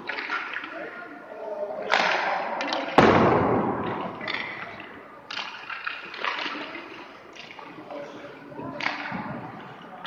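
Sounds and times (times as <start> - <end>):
puck shot crack: 1.9 - 6.7.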